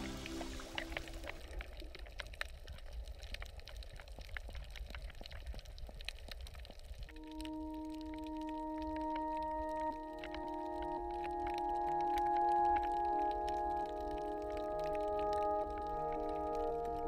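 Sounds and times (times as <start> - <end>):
music with long held tones: 0.0 - 1.3, 7.2 - 17.0
low underwater rumble: 0.0 - 17.0
sharp underwater clicks and crackles: 0.6 - 17.0.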